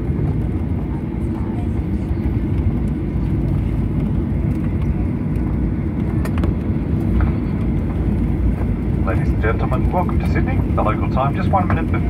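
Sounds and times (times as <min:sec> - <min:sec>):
airplane cabin rumble: 0:00.0 - 0:12.0.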